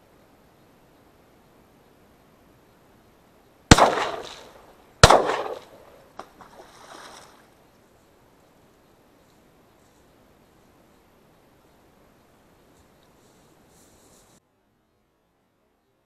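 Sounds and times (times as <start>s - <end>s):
shotgun shots echoing: 3.7s - 6.4s.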